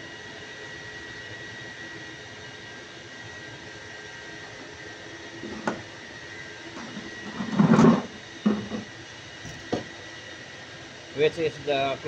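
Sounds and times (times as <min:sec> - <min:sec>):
machine hum: 0:05.2 - 0:10.1
thump: 0:09.4 - 0:09.9.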